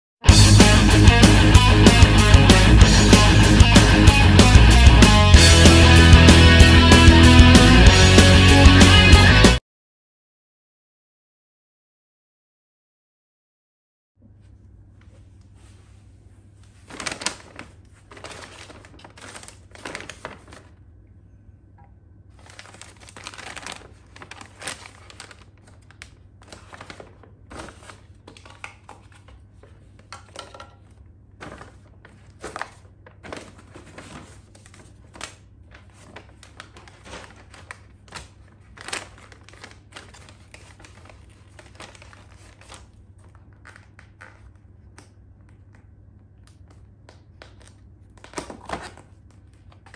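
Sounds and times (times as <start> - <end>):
paper bag rustling: 15.5 - 20.8, 22.3 - 44.8, 47.3 - 49.9.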